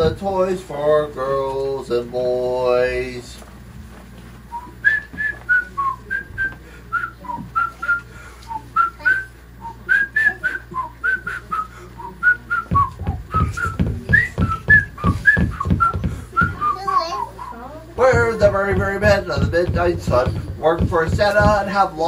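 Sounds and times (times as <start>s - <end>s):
person whistling a tune: 4.5s - 17.6s
low thumps: 12.7s - 16.8s, 18.0s - 22.0s.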